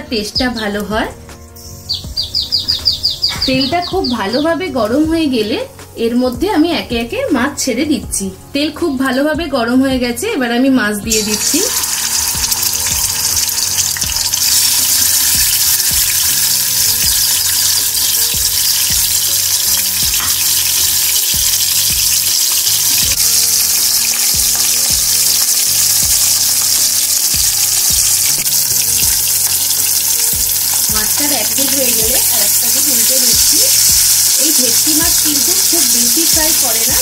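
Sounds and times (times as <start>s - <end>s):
fish sizzling in hot oil: 11.1s - 37.0s.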